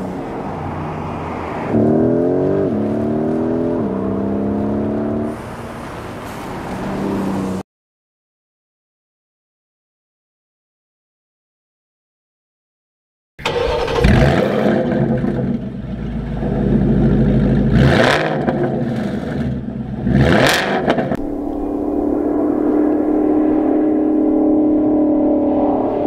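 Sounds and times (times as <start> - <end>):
car engine revving: 0.0 - 5.7, 13.4 - 26.0
car engine idling: 13.4 - 17.9, 18.5 - 25.4.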